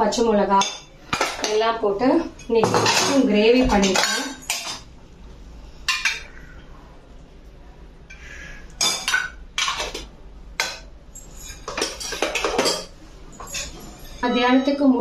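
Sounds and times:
spoon clinking against steel bowls: 0.5 - 4.9, 5.9 - 6.4, 8.1 - 15.0.

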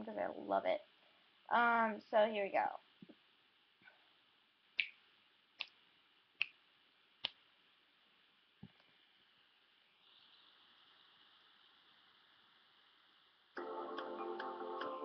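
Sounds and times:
finger snaps: 4.8 - 5.0, 5.6 - 5.8, 7.2 - 7.4.

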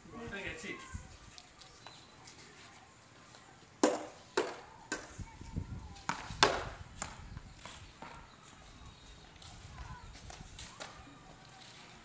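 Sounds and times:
ball and bat clacking on concrete: 3.3 - 5.2, 6.0 - 8.4, 10.1 - 11.0.

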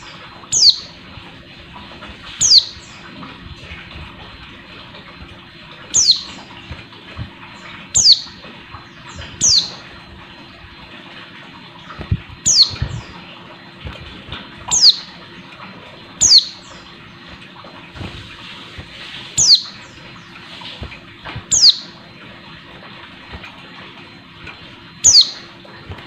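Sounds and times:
bird high sharp calls: 0.5 - 1.0, 2.4 - 3.0, 5.9 - 6.5, 8.0 - 9.9, 12.4 - 13.2, 14.7 - 15.1, 16.2 - 16.8, 19.4 - 20.0, 21.5 - 22.0, 25.0 - 25.5.

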